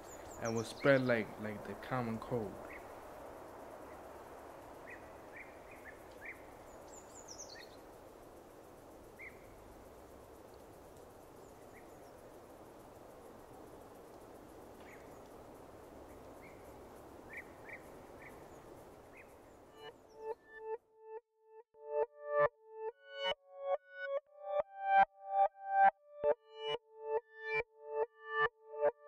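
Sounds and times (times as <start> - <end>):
bird chirps: 0.0 - 2.9, 4.8 - 7.9, 9.2 - 9.6, 11.4 - 12.2, 14.8 - 15.3, 17.3 - 20.4.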